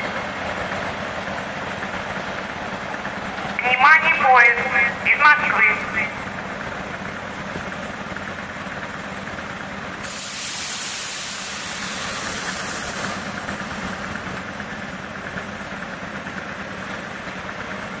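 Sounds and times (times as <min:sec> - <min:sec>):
train equipment humming: 0:00.0 - 0:17.4
compressed air hiss: 0:10.0 - 0:14.4.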